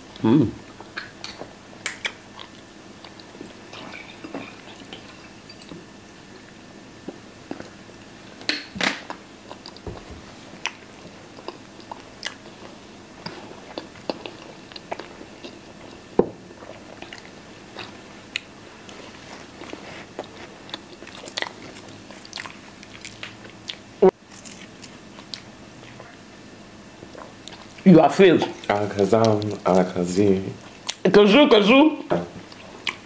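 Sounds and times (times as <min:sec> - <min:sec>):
wet mouth smacks: 0:00.9 - 0:02.2.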